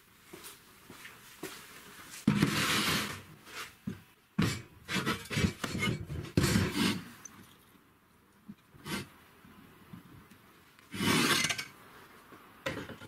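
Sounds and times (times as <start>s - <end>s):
metal scraping on wood: 2.3s - 3.6s, 4.4s - 7.1s, 8.8s - 9.1s, 10.9s - 11.8s
metal rubbing on wood: 4.4s - 7.1s, 10.9s - 11.7s.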